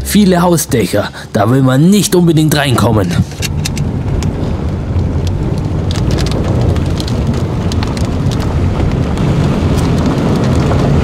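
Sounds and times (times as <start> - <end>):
wind blowing across microphone: 2.8 - 11.0.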